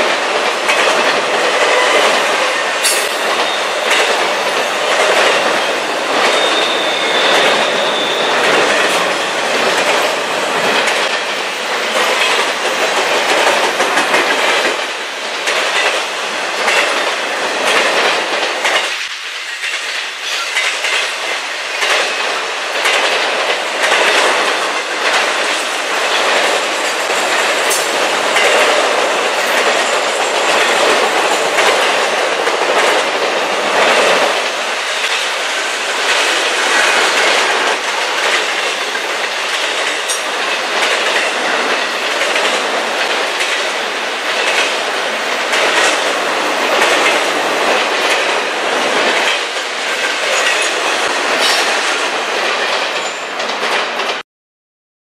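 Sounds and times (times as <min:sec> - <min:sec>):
steel wheels rushing on rail: 0:00.0 - 0:54.2
wheels clicking over rail joints: 0:00.0 - 0:54.2.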